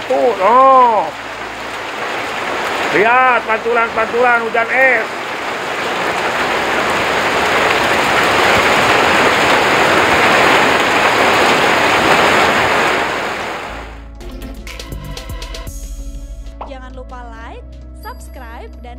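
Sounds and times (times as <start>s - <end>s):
hail and rain on a roof: 0.0s - 13.9s.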